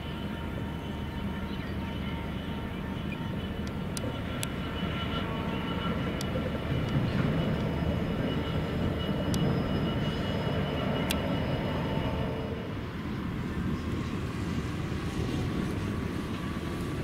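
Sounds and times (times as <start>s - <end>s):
diesel locomotive passing: 0.0s - 17.0s.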